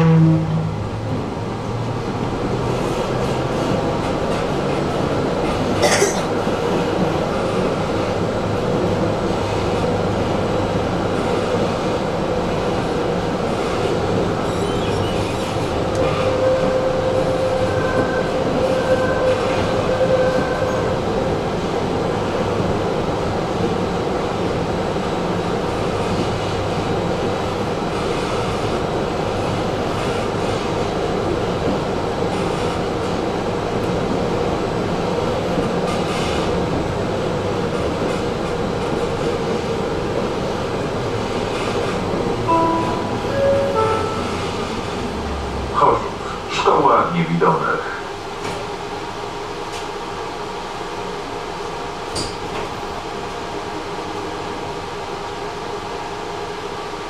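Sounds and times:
tram wheels rumbling on rails: 0.0 - 57.0
steady tone: 42.4 - 45.9.

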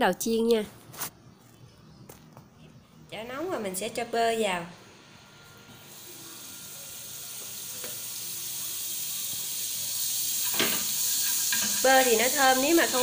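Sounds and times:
butter sizzling in a frying pan: 5.8 - 13.0.

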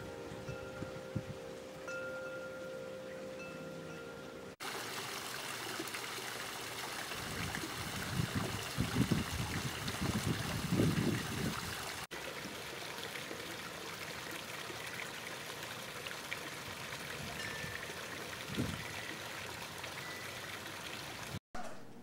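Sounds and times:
waterfall splashing over rocks: 4.6 - 21.4.

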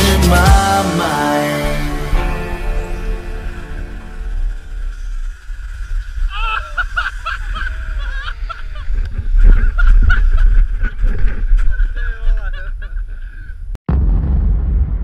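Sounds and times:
wind rumble on microphone: 4.2 - 15.0
man laughing: 6.3 - 10.7, 11.6 - 13.7.

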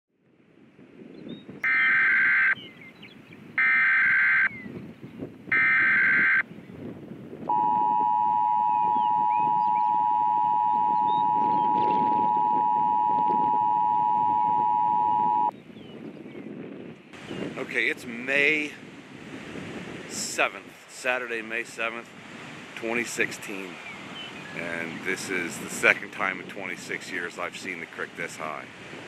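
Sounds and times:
steady attention tone: 1.6 - 2.6, 5.5 - 6.4, 7.5 - 15.5.

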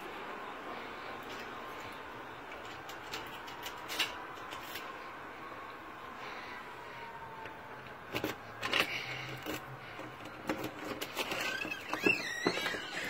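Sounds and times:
squeaky door hinge creaking: 10.6 - 13.0.

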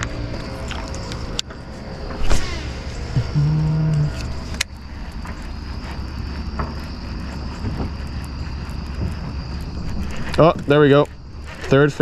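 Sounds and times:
faint high whine: 0.0 - 6.8
low motor hum: 0.0 - 11.5.

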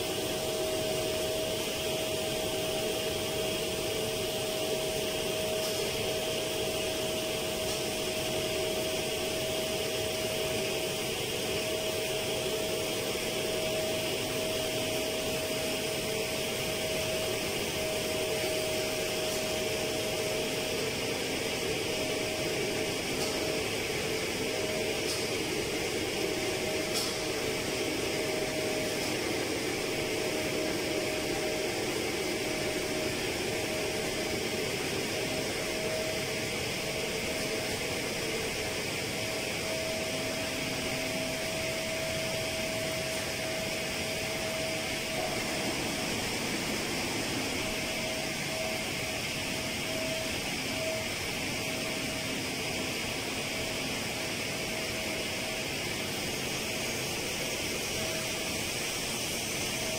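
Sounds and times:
machinery drone with whine: 0.0 - 59.9.

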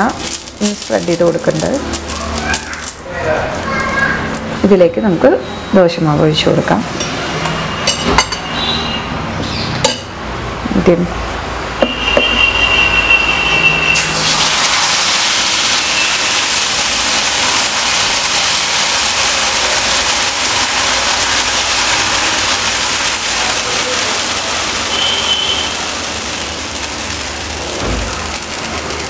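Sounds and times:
batter sizzling on griddle: 0.0 - 3.9, 13.9 - 29.0.

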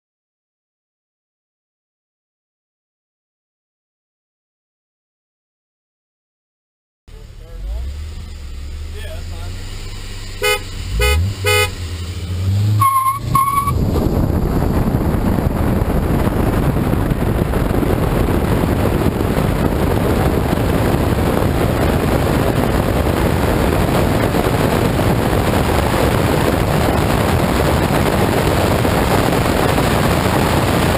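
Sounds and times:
engine revving: 7.1 - 30.9
wind and road noise: 7.1 - 30.9
car horn honking: 10.2 - 12.0, 12.7 - 14.0
higher beeps: 12.8 - 13.8.

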